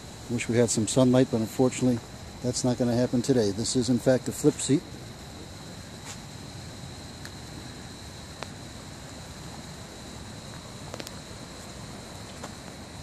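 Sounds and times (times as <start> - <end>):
high thin insect drone: 0.0 - 13.0
faint ticks: 8.4 - 8.6, 10.5 - 11.2.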